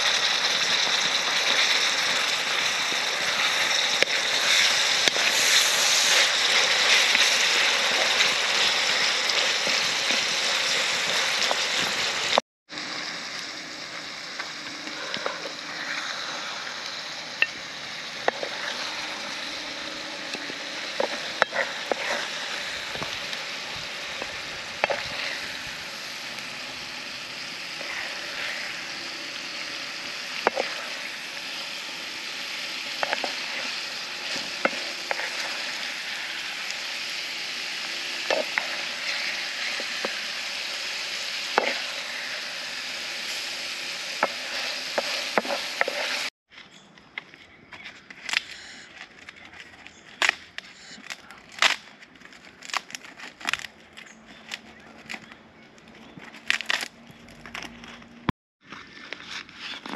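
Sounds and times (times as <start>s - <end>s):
vegetables sizzling in frying pan: 0.0s - 46.3s
wooden spatula scraping pan: 20.3s - 23.0s.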